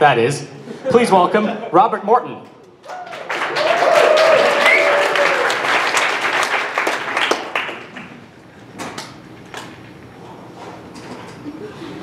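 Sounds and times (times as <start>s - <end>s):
audience applauding: 2.8s - 8.2s.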